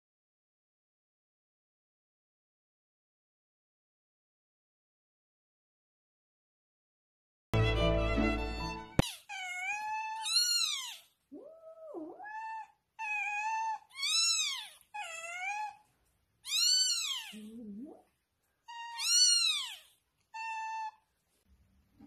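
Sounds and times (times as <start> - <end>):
newborn kitten crying: 9.0 - 17.6, 18.6 - 21.1.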